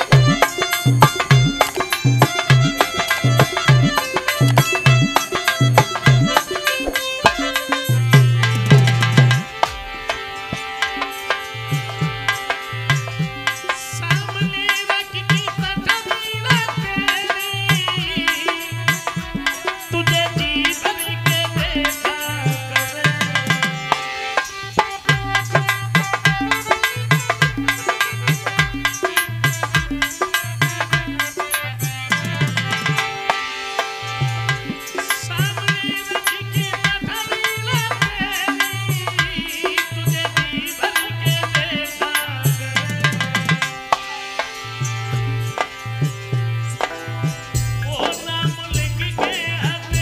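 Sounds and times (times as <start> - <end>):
sustained melody line: 0.0 - 17.4
hand drums beating: 0.0 - 50.0
tabla playing a rhythm: 0.0 - 50.0.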